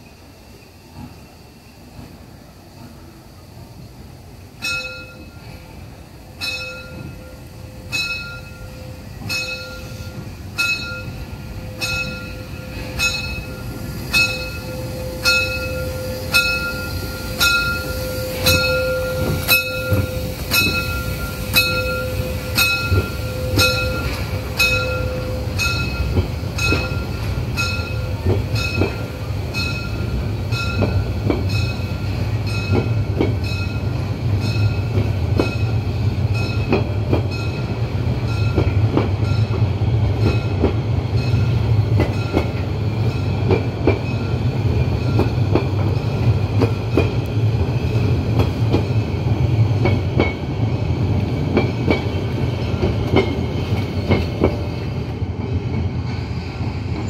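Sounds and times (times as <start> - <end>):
railway coaches passing: 0.0 - 57.0
steam locomotive rumble: 0.0 - 57.0
locomotive bell ringing: 4.6 - 5.8, 6.4 - 46.0.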